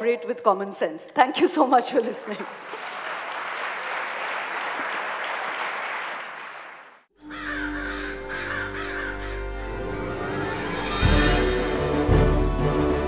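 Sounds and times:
audience applauding: 2.3 - 7.1
crows cawing: 7.2 - 9.7
music: 7.2 - 13.0.

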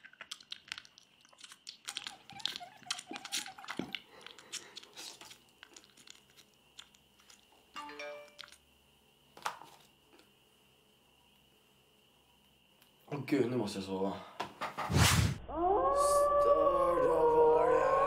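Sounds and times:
crunching and chewing: 0.0 - 8.7.

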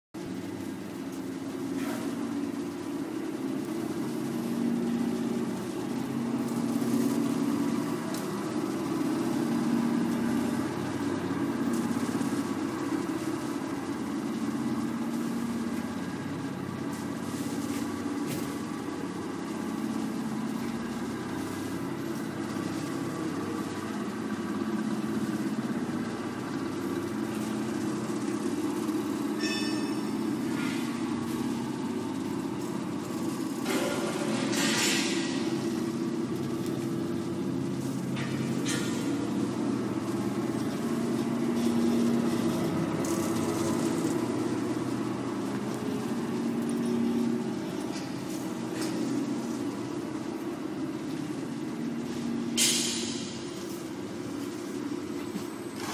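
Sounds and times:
shredder mechanical drone: 0.2 - 55.9
short high ringing tone: 29.4 - 30.3.

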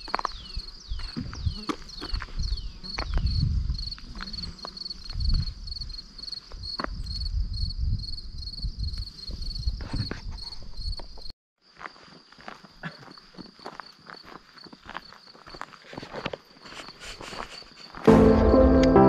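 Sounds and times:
footsteps on gravel: 0.0 - 2.4, 11.7 - 18.2
cricket chirping: 0.0 - 18.1.

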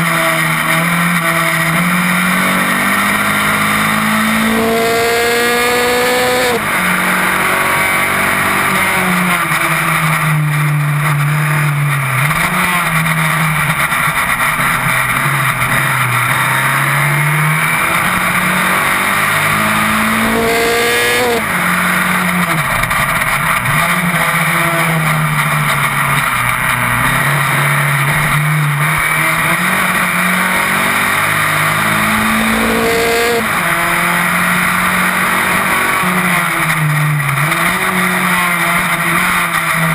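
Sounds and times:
racing car engine revving: 0.0 - 39.9
steady rushing noise: 12.3 - 36.6.

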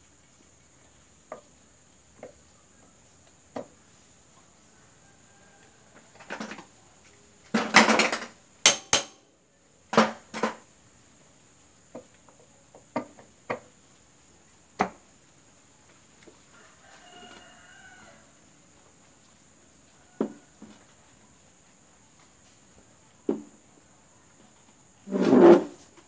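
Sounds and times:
metal clanks and knocks: 7.6 - 9.2.

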